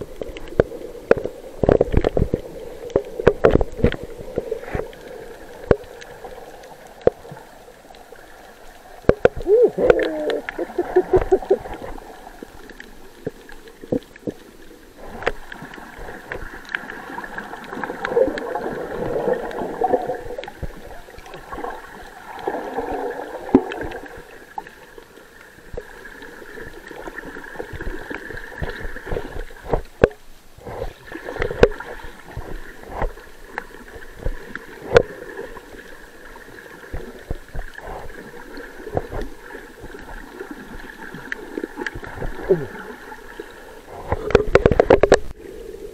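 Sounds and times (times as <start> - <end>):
muffled water sloshing underwater: 0.0 - 45.9.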